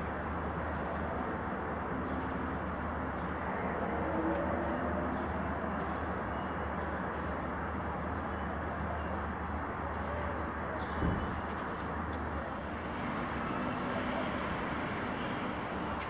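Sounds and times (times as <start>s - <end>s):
continuous low rumble: 11.5s - 16.0s.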